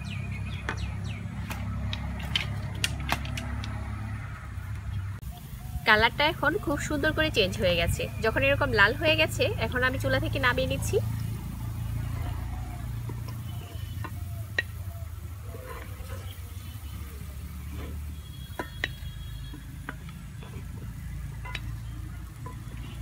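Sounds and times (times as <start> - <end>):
dough frying in hot oil: 5.8 - 23.0.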